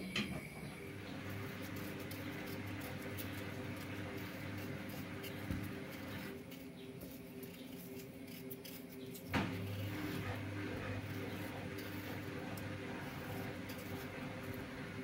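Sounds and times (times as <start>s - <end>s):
knife scraping potato skins: 1.2s - 15.0s.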